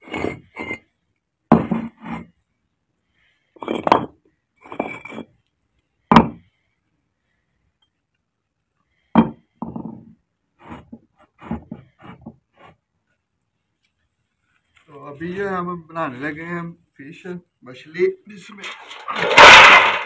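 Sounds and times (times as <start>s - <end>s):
bricks knocking and scraping: 0.0s - 0.8s, 1.5s - 2.3s, 3.6s - 5.4s, 6.1s - 6.5s, 9.2s - 12.8s, 18.7s - 20.0s.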